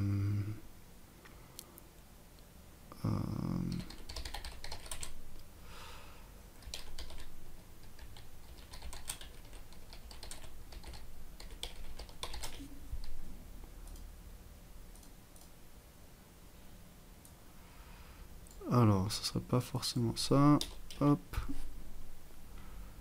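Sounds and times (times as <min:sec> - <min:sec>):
computer keyboard key clicks: 0:03.8 - 0:05.1, 0:08.0 - 0:13.2.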